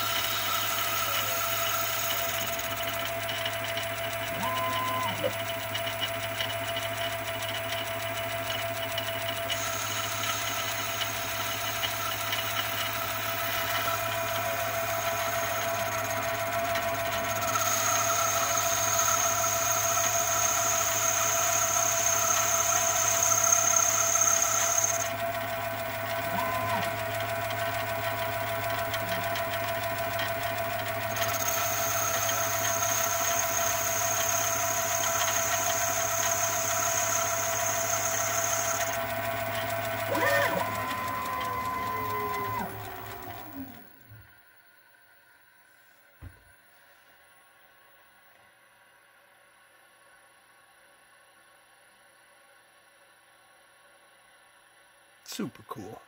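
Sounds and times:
lathe motor whining: 0.0s - 44.4s.

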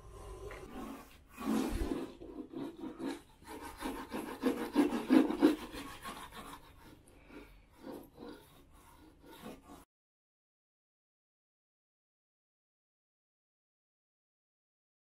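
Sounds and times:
seam roller rubbing wallpaper: 0.0s - 9.9s.

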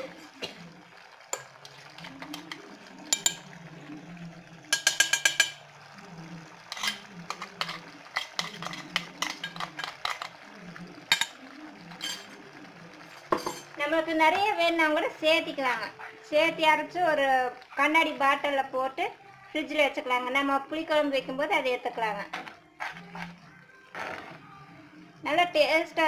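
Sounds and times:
metal utensils clinking in pan: 1.3s - 3.6s, 4.6s - 5.9s, 6.6s - 10.4s, 11.0s - 12.5s, 13.3s - 13.8s
metal taps: 4.7s - 5.6s.

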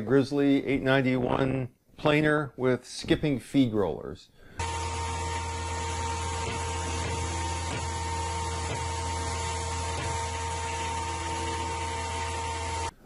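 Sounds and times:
planer humming: 4.6s - 13.0s.

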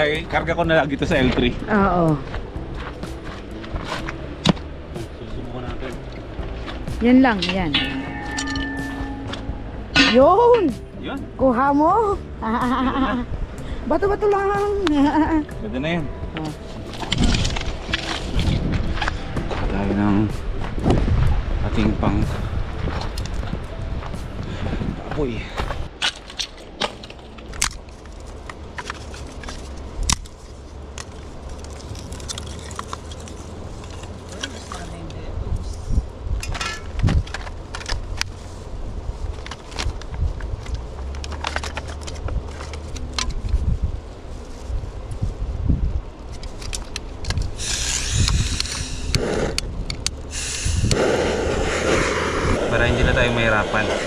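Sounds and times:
low wind rumble: 0.0s - 54.0s
wooden sticks snapping: 26.0s - 34.9s
gas hissing: 47.4s - 54.0s
torch flame rushing: 47.4s - 54.0s.

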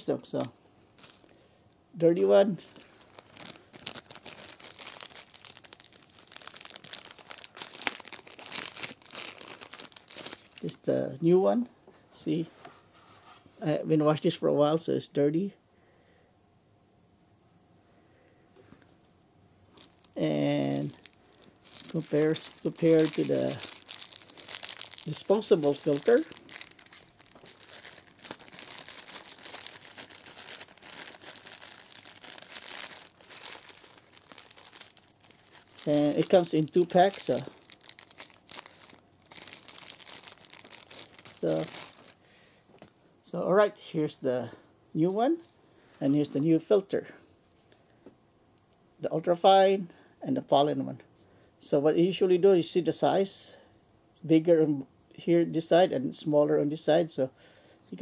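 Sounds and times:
plastic bag crinkling: 1.0s - 1.4s, 2.1s - 10.8s, 19.6s - 42.2s.

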